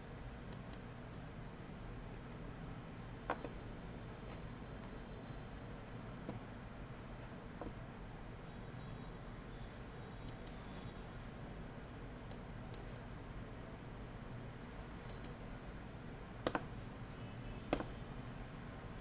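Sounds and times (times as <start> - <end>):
faint room hiss: 0.0 - 19.0
computer mouse clicks: 0.5 - 0.9, 10.2 - 10.7, 12.3 - 12.9, 15.0 - 15.4.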